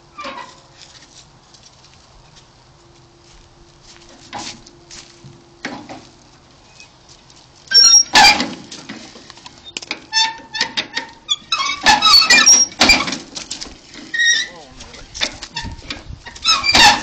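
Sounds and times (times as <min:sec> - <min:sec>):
hand crank squeaking: 0:07.7 - 0:08.4, 0:09.6 - 0:13.2, 0:14.0 - 0:14.6, 0:15.5 - 0:17.0.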